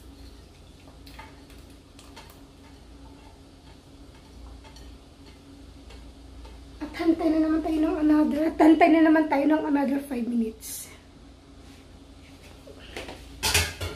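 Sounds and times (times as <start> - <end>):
pot simmering with ticks and pops: 0.0 - 7.1
low steady hum: 0.0 - 13.9.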